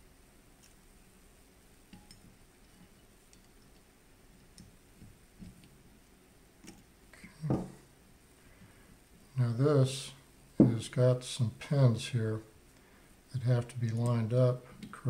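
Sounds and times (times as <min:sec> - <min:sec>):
light clicks of steel parts: 0:01.9 - 0:04.8.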